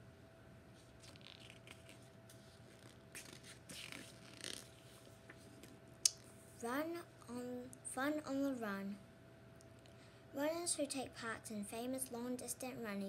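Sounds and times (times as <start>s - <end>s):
book page rustling: 0.8s - 5.8s.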